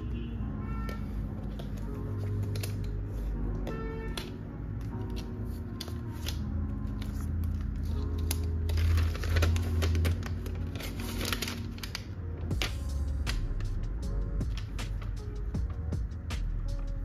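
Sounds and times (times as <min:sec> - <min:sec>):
soft background music: 0:00.0 - 0:17.0
paper wrap rustling and tearing: 0:04.1 - 0:13.8.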